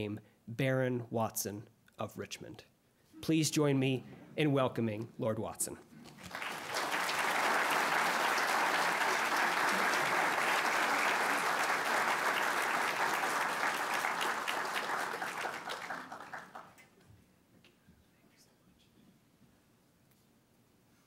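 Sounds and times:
audience applauding: 6.1 - 16.9.

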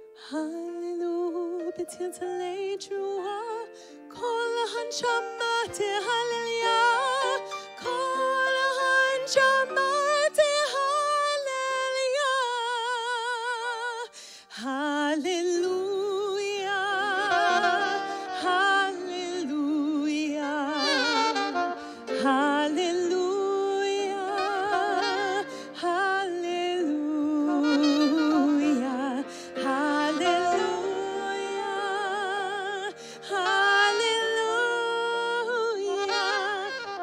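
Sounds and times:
live ensemble music: 17.0 - 18.9, 20.4 - 26.3, 27.5 - 37.0.

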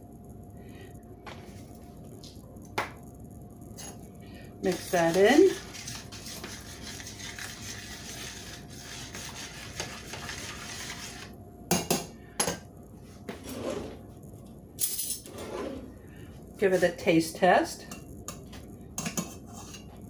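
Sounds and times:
spoon stirring sauce in skillet: 4.7 - 11.3.

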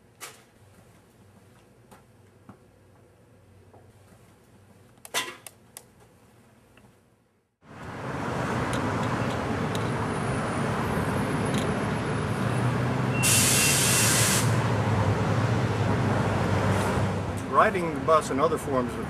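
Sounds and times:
bus engine rumbling: 7.7 - 19.0
air brakes hissing: 13.1 - 14.6.

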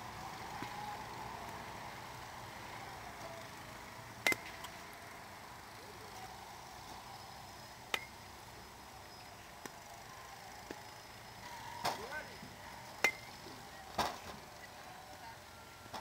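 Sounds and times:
metal bat pinging ball: 4.2 - 4.8, 7.9 - 8.1, 13.0 - 13.3.

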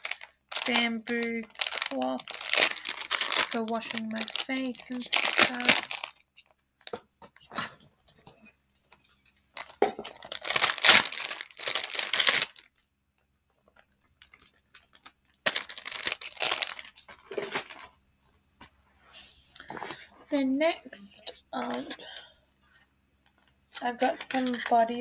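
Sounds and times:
plastic wrapper tearing and crinkling: 0.0 - 7.7, 9.5 - 12.8, 14.2 - 17.9, 23.8 - 25.0.

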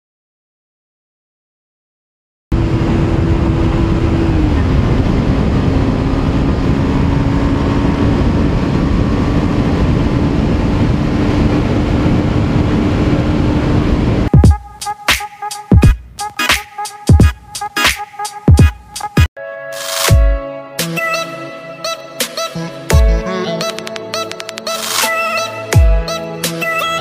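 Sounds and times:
wind rush on microphone: 2.5 - 14.3
motorcycle engine running hard: 2.5 - 14.5
music: 14.3 - 27.0.

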